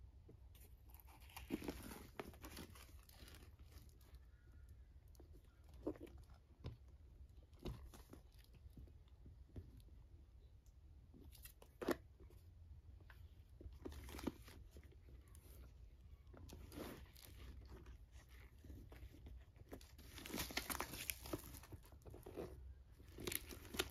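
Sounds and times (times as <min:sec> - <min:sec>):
tissue paper crinkling: 0:16.5 - 0:22.4, 0:23.1 - 0:23.9.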